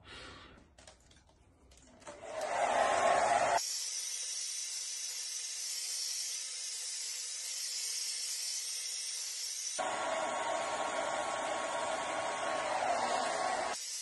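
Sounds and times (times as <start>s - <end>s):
hair dryer blowing: 2.1s - 3.6s, 9.8s - 14.0s.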